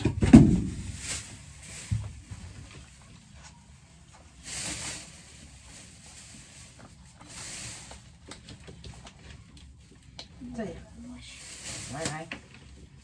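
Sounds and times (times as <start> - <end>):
plastic bag rustling: 0.1 - 9.8, 10.4 - 13.0.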